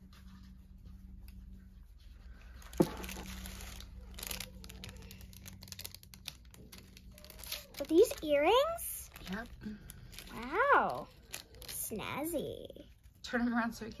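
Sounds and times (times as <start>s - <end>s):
plastic packaging crinkling and tearing: 2.5s - 12.8s.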